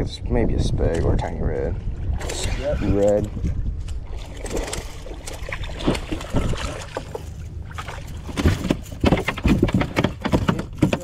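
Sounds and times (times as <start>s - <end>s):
wind rumbling on microphone: 0.0s - 11.0s
water lapping at kayak: 1.6s - 10.3s
knocks and thumps on hull: 4.4s - 11.0s.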